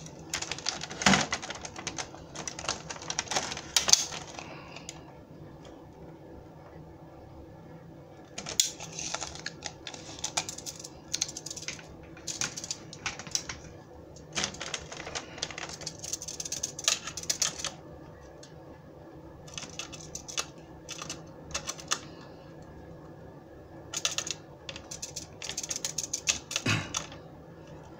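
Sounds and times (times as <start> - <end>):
rapid clicking and rattling: 0.0 - 4.9, 8.4 - 17.8, 19.5 - 22.1, 23.9 - 27.2.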